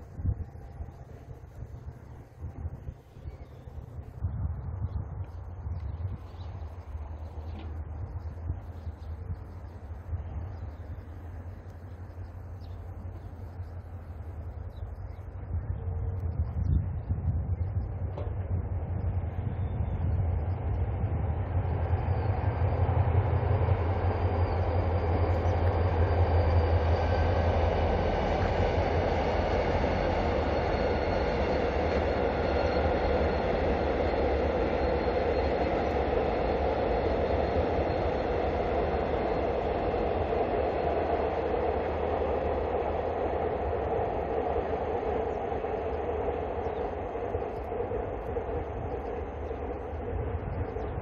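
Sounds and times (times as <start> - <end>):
freight train rumbling: 0.0 - 51.0
low engine drone: 0.0 - 51.0.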